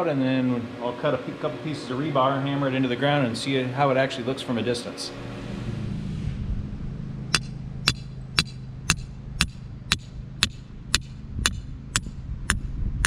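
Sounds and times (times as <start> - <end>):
steady low hum: 0.0 - 13.0
sledgehammer striking metal stake: 7.3 - 12.1.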